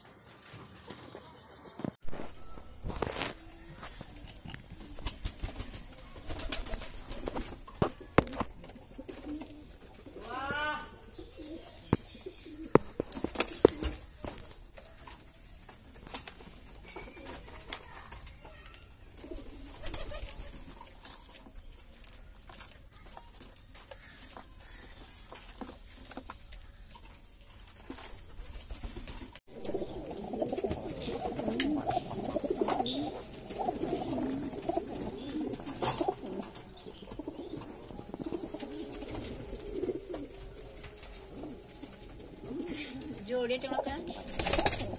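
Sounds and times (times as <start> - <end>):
pigeons cooing: 2.4 - 14.4, 19.1 - 21.1, 29.5 - 44.9.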